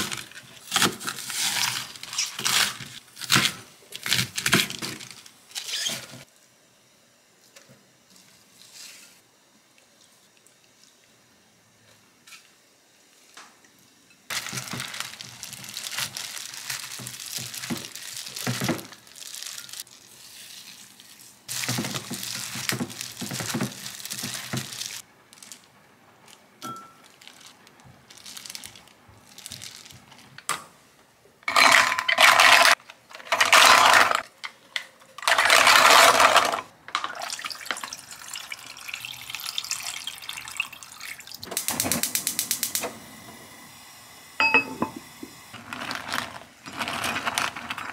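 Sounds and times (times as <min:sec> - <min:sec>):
cabbage rustling in a glass bowl: 0:14.3 - 0:25.6
water poured into a pot: 0:37.0 - 0:41.5.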